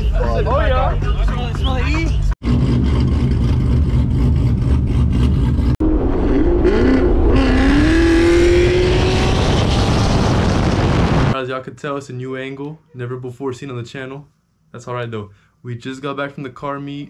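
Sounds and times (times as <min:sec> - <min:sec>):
car engine accelerating: 0:02.4 - 0:11.4.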